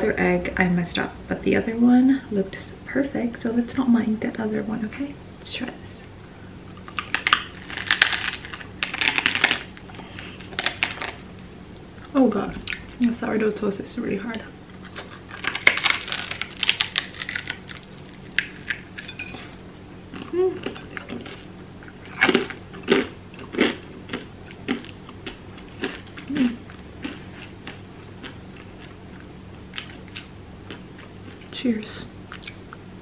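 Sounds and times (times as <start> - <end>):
crunching hard toast: 6.9 - 11.3, 14.9 - 19.6.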